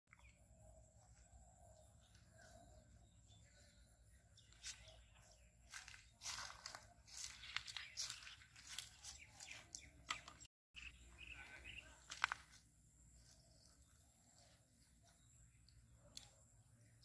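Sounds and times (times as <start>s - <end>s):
footsteps crackling in dry stems: 4.4s - 10.5s, 11.3s - 14.9s.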